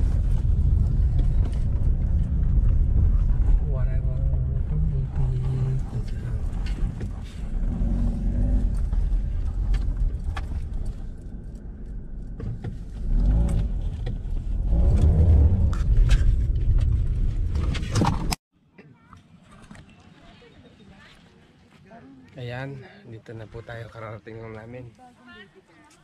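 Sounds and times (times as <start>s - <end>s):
car engine and tyre rumble: 0.0s - 18.4s
gravel clicking under tyres: 0.0s - 18.4s.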